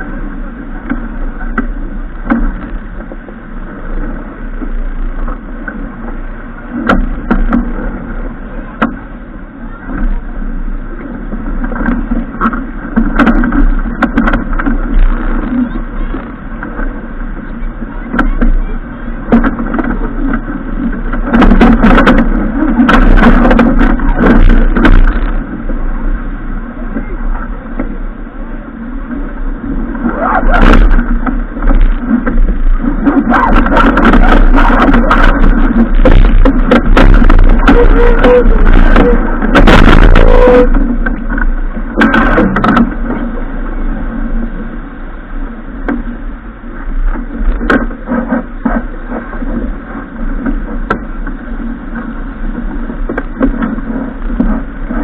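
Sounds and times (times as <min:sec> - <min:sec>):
water rushing: 0:00.0 - 0:55.0
wind buffeting microphone: 0:00.0 - 0:55.0
knocks and rattles: 0:33.4 - 0:43.0.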